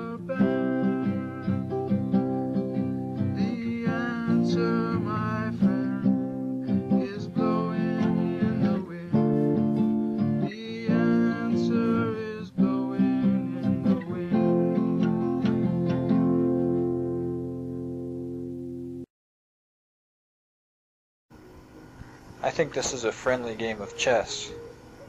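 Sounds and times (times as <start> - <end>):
man singing: 0.0 - 2.5, 3.2 - 15.9
strummed acoustic guitar: 0.0 - 19.0.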